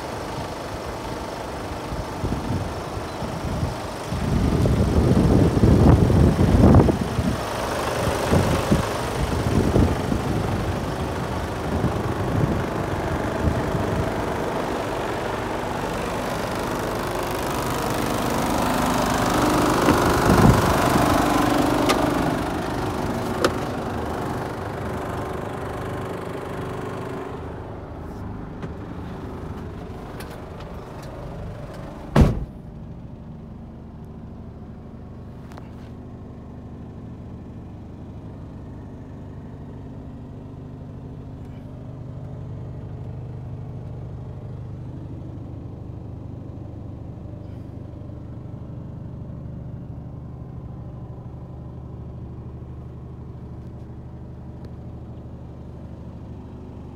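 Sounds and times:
diesel engine idling: 0:00.0 - 0:56.9
loud thump: 0:32.1 - 0:32.6.

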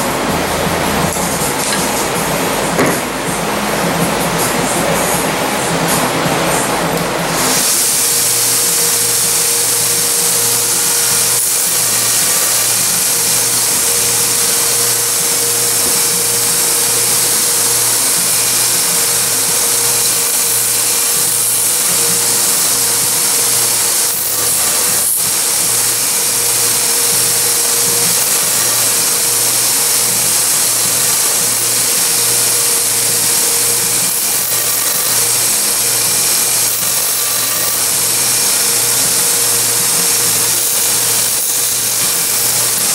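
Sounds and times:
belt grinder whining: 0:06.5 - 0:42.9
handle scales ground on sanding belt: 0:07.3 - 0:42.9.

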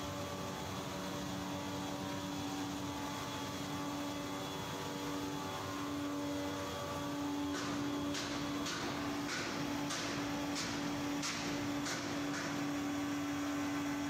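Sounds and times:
conveyor motor drone: 0:00.0 - 0:14.0.

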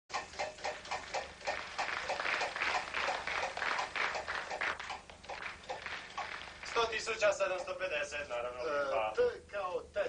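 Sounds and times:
audience applauding: 0:00.5 - 0:07.4.

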